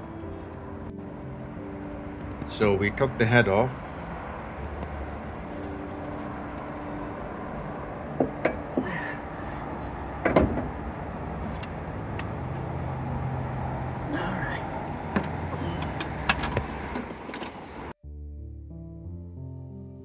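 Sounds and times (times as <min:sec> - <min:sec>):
knocks and clicks of engine work: 0:10.2 - 0:10.8, 0:15.0 - 0:17.6.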